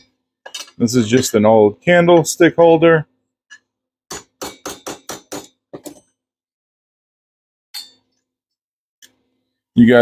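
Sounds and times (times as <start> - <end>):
hammer tapping metal: 3.5 - 6.0.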